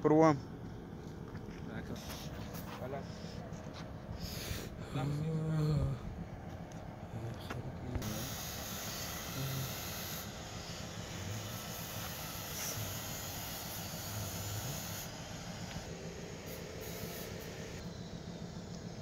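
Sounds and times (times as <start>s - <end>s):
steady rushing hiss: 8.0s - 17.8s.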